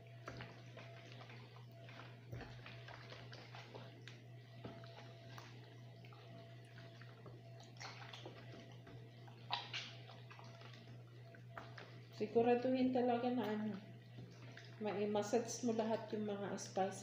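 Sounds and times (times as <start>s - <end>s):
low hum: 0.0s - 17.0s
hands squelching on raw chicken: 6.6s - 12.0s.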